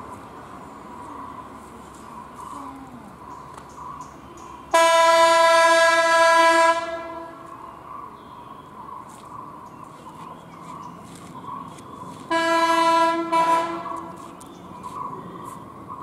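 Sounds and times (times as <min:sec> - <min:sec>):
bus horn: 0:04.7 - 0:07.4, 0:12.3 - 0:14.2.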